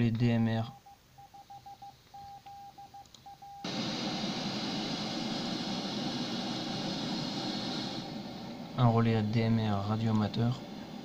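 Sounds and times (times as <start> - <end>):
short and long beeps: 0.7 - 3.7
harsh radio hiss: 3.6 - 11.0.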